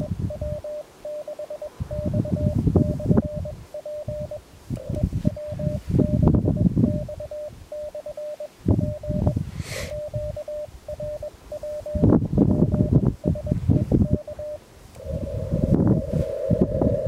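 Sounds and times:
morse code tone: 0.0s - 14.6s
bursts of low rumbling noise: 11.8s - 17.0s.

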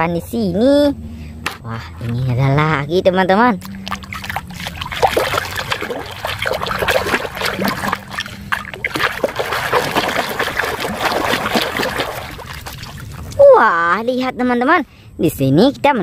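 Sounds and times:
hand splashing in basin water: 3.6s - 13.4s.

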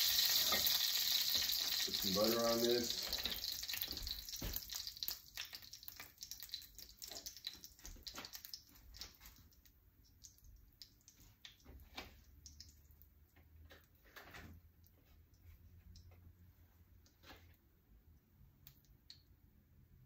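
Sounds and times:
pan sizzling: 0.0s - 11.6s.

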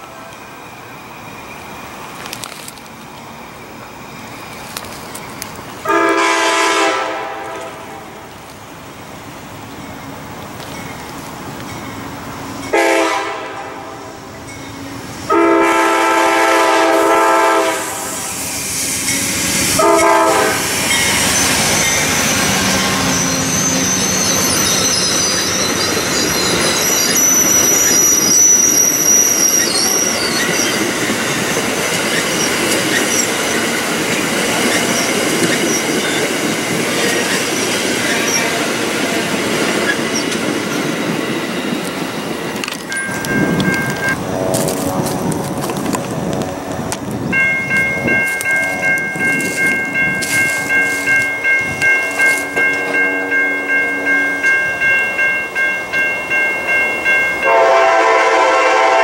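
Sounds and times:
train wheels rushing on rail: 0.0s - 59.0s
train air horn blasts: 5.8s - 8.3s, 12.7s - 14.3s, 15.3s - 18.6s, 19.6s - 21.0s, 57.4s - 59.0s
high wheel squeal: 17.6s - 42.1s, 42.8s - 45.2s.

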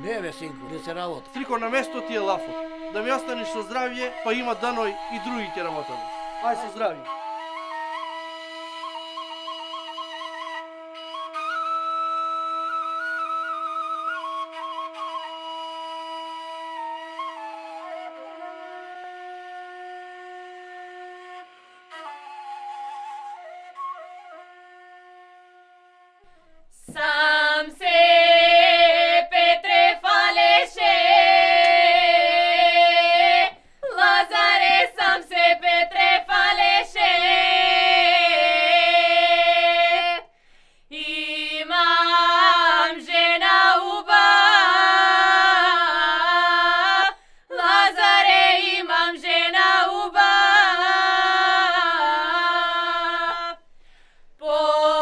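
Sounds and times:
held woodwind note: 0.0s - 26.6s
girls singing a cappella: 26.8s - 40.3s, 40.9s - 53.6s, 54.4s - 55.0s.

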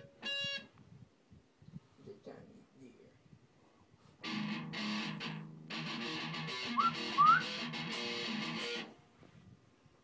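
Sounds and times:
guitar strumming: 0.0s - 0.7s, 4.2s - 9.0s
short rising whistles: 6.8s - 7.6s.

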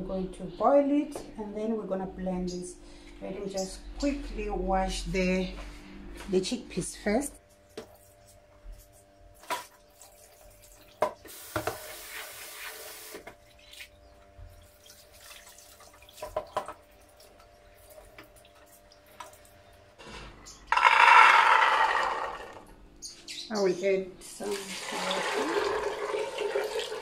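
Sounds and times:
tap water running: 9.4s - 19.7s, 24.4s - 27.0s
chickpeas pouring into metal pot: 20.7s - 22.6s, 24.5s - 27.0s.

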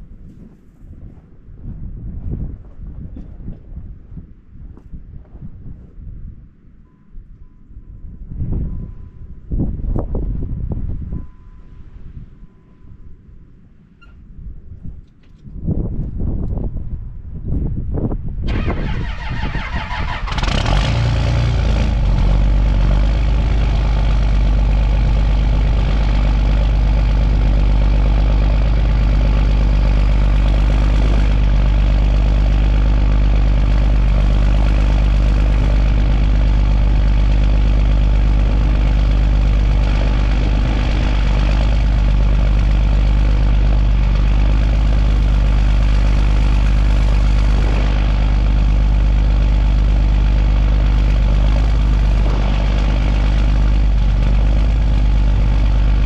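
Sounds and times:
starter motor cranking: 18.5s - 37.5s, 50.8s - 56.0s
truck engine idling: 18.5s - 56.0s.

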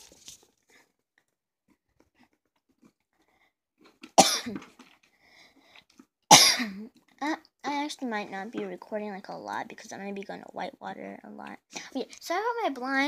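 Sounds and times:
person coughing: 4.2s - 4.7s, 6.3s - 6.9s.

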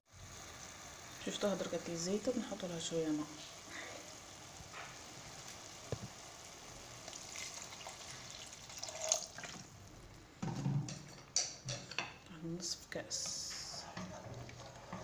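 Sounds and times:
water pouring into hot pan: 0.1s - 10.1s
stirring in a pan: 0.2s - 10.2s, 13.1s - 15.0s.

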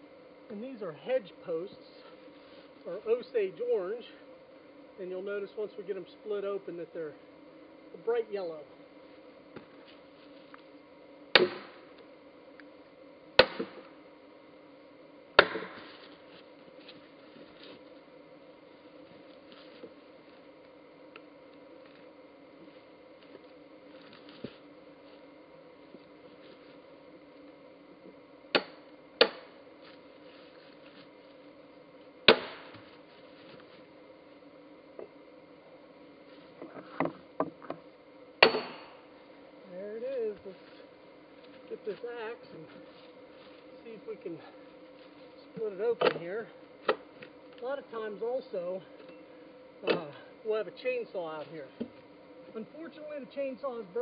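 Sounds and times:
sledgehammer striking steel wedge: 11.4s - 11.8s, 15.4s - 15.8s, 38.4s - 38.9s.

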